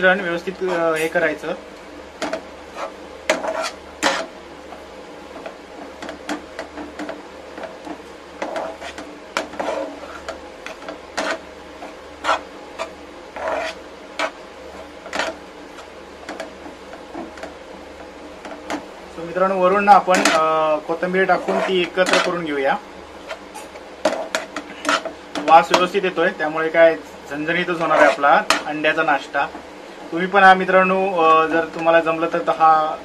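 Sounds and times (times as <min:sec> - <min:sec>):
spatula scraping frying pan: 0:00.5 - 0:01.2, 0:02.2 - 0:04.4, 0:05.4 - 0:17.5, 0:19.9 - 0:22.4, 0:23.2 - 0:25.8, 0:27.7 - 0:28.7.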